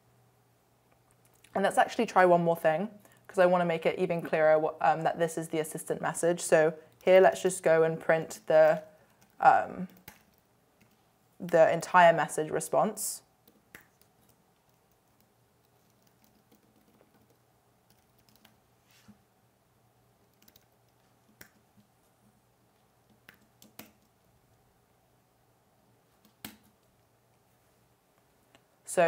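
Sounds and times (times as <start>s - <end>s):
computer keyboard keystrokes: 13.4s - 18.6s, 20.2s - 21.7s, 23.1s - 24.2s.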